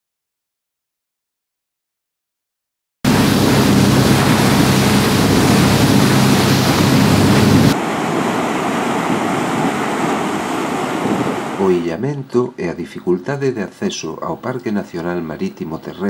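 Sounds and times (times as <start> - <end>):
low engine hum: 3.1 - 10.8
surf washing over rocks: 3.1 - 11.8
water rushing: 3.1 - 11.9
wind: 3.1 - 16.0.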